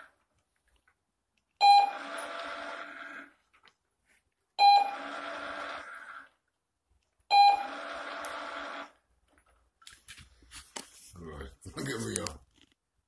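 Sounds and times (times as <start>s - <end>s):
treat dispenser beep: 1.6s - 2.8s, 4.6s - 5.5s, 7.3s - 8.7s
treat dispenser motor running: 1.7s - 3.4s, 4.7s - 6.4s, 7.4s - 9.0s.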